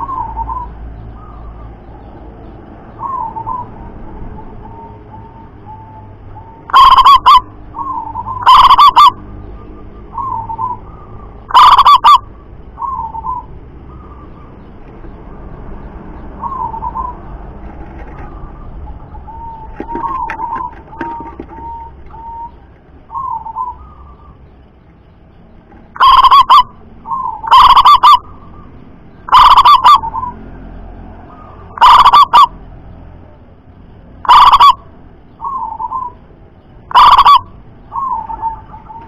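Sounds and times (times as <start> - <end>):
dove cooing: 0.0 - 1.7, 3.0 - 9.2, 10.1 - 14.5, 16.4 - 24.4, 26.0 - 28.7, 29.3 - 30.4, 31.3 - 32.5, 34.2 - 34.8, 35.4 - 36.2, 36.9 - 39.0.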